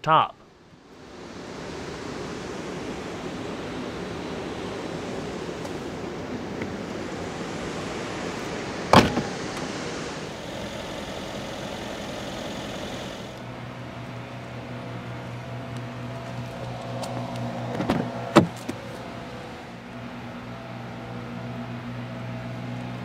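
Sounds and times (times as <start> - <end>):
steady low hum: 0.5 - 22.3
trunk lid latching shut: 8.9 - 9.6.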